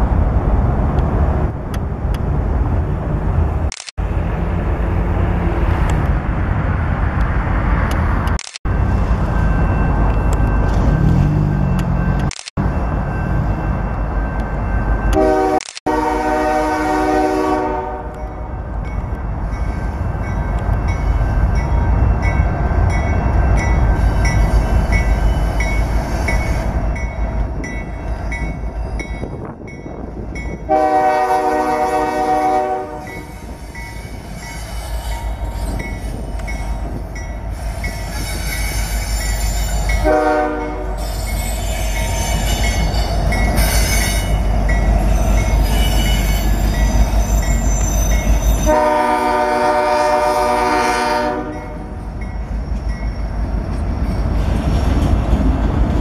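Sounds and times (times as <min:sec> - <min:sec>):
freight train rumbling past: 0:00.0 - 0:56.0
crossing bell dinging: 0:08.7 - 0:15.6, 0:18.0 - 0:32.1, 0:32.8 - 0:49.1, 0:51.3 - 0:54.4
locomotive horn blasts: 0:15.1 - 0:18.3, 0:30.7 - 0:33.3, 0:40.0 - 0:41.0, 0:48.6 - 0:52.0.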